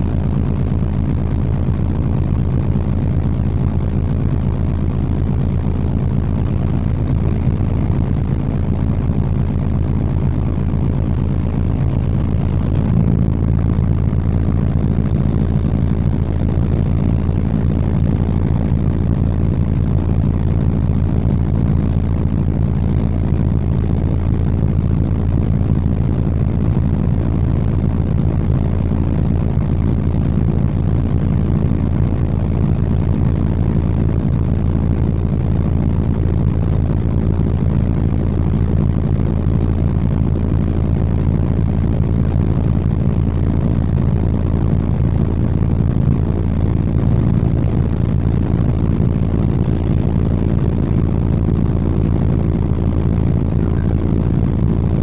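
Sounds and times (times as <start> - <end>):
bus engine humming: 6.4 - 9.6, 11.6 - 17.5, 44.6 - 55.0.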